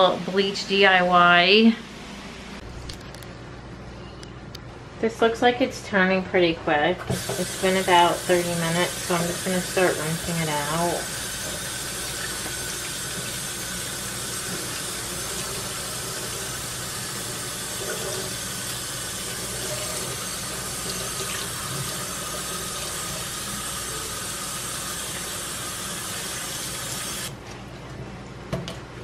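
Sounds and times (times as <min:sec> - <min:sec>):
faucet running into metal sink: 0:07.1 - 0:27.3.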